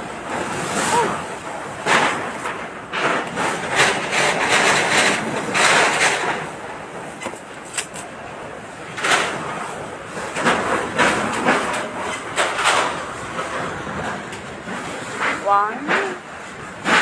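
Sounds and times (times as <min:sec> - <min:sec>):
storm wind rushing in gusts: 0:00.0 - 0:17.0.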